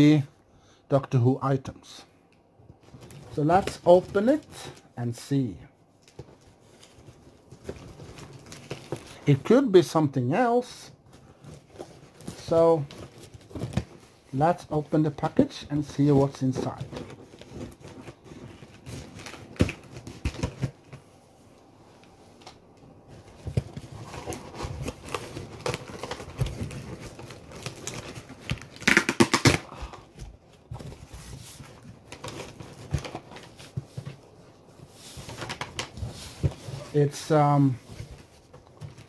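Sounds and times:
hands rustling tape: 15.3 - 39.0.

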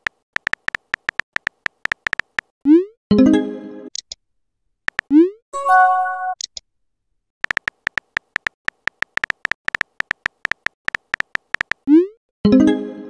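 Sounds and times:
keyboard tap clicks: 0.0 - 2.5, 7.4 - 11.8
synthetic message chime: 5.6 - 6.4.

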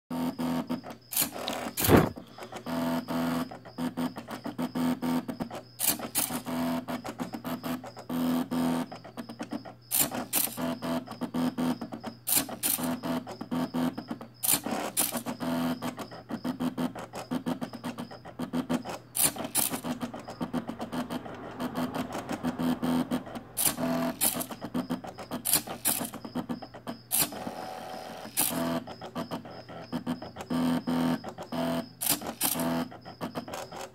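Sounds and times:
stepper motors whining: 1.1 - 2.2.

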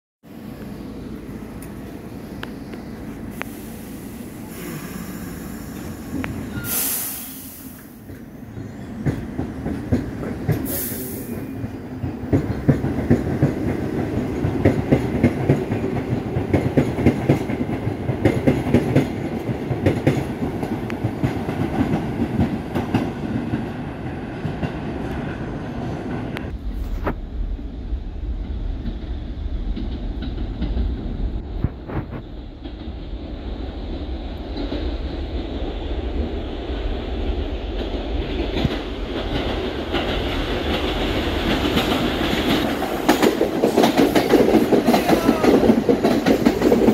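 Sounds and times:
air hissing: 2.0 - 8.2, 10.6 - 11.6
train wheels clattering over rail joints: 9.0 - 23.8, 37.6 - 46.9.

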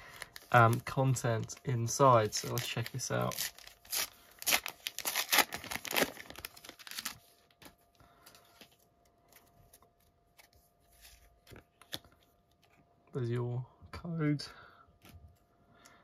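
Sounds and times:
wrapper tearing and crinkling: 2.2 - 7.3.

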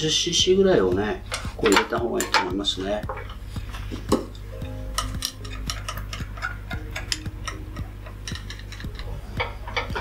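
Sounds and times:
steady low hum: 0.0 - 10.0
chopsticks clicking in metal pan: 4.9 - 10.0.

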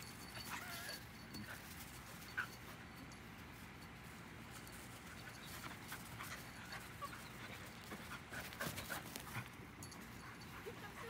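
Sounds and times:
dog whining: 0.4 - 1.1
dog panting: 5.1 - 11.0.

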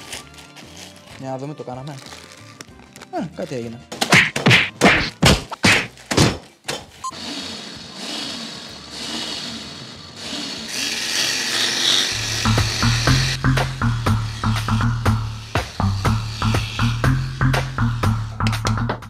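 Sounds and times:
background music with a beat: 3.9 - 5.9, 12.5 - 19.0
fist pounding bag of chips: 3.9 - 6.9.

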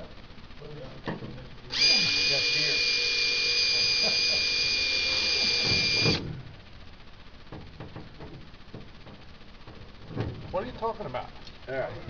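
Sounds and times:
power drill whining: 1.7 - 6.2.

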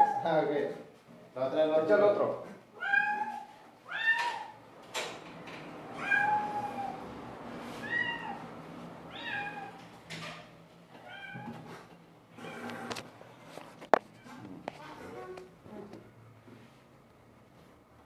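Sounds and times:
cat meowing: 2.8 - 4.6, 5.9 - 7.0, 7.8 - 8.4, 9.1 - 9.8, 11.0 - 11.7.

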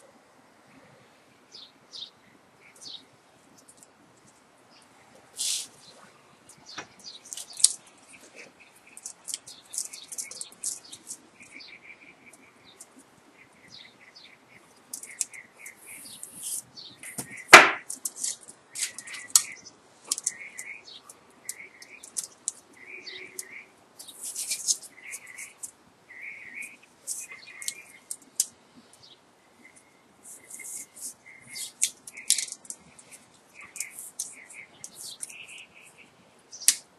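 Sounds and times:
wire clicking and rustling: 6.5 - 11.6, 14.9 - 25.8, 26.6 - 28.6, 30.2 - 35.6, 36.6 - 36.9
sharp knock: 17.2 - 17.9.

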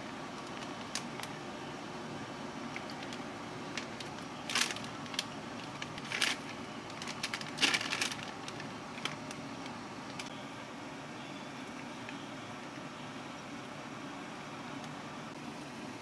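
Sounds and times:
low steady hum: 0.0 - 16.0
plastic packaging crinkling: 0.4 - 1.4, 2.6 - 10.3.

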